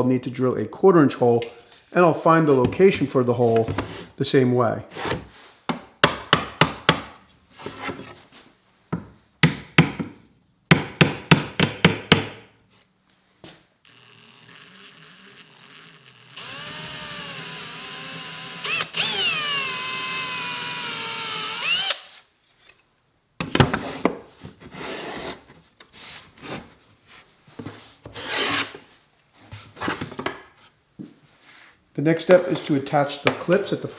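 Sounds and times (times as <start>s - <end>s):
cordless drill boring wood: 13.9s - 22.1s.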